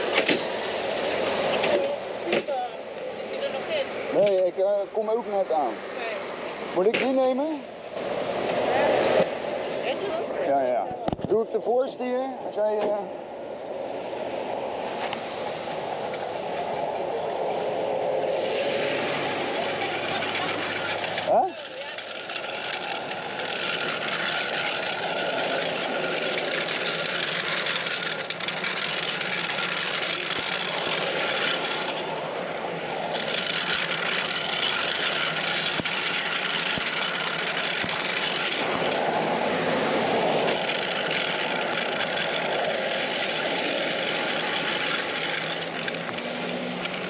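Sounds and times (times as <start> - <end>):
tyres hissing on wet road: 14.2 - 47.0.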